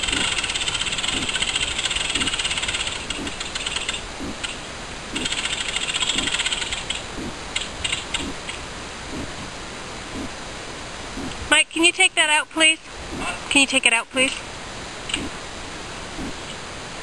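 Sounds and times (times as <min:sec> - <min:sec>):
rapid mechanical ratcheting clicks: 0:00.0 - 0:08.6.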